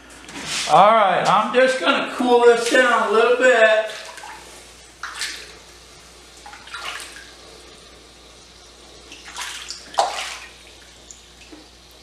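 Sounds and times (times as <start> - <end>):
water splashing by hand: 3.8 - 5.7, 6.4 - 7.4, 9.1 - 11.7.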